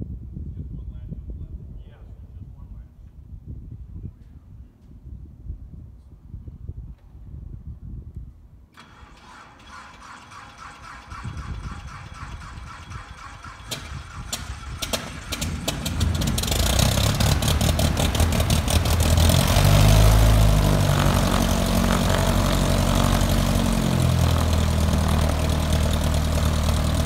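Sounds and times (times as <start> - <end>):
aircraft engine revving and idling: 8.8 - 27.0
aircraft starter cranking: 8.8 - 27.0.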